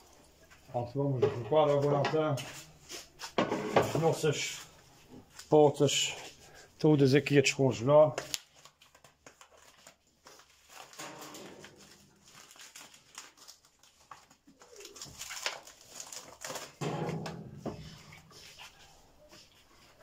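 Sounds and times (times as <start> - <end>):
plastic crinkling: 8.1 - 20.0.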